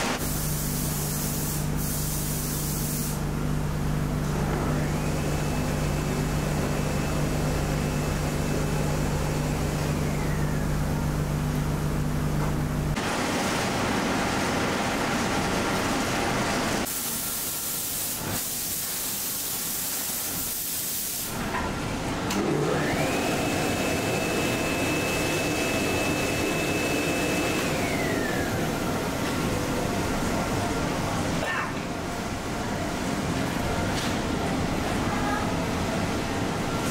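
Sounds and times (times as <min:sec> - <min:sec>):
loud hiss: 0:00.0 - 0:03.2, 0:16.9 - 0:21.3
workshop machine noise: 0:00.0 - 0:36.9
motor whine: 0:04.4 - 0:11.2.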